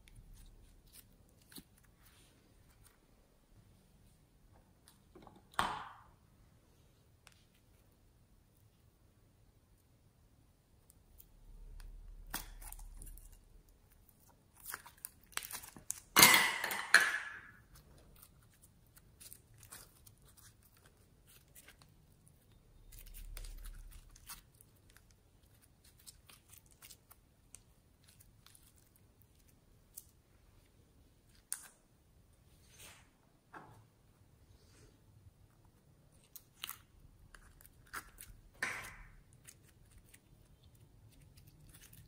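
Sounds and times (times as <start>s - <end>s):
slime crackling and popping: 10.8s - 16.6s, 17.6s - 30.2s.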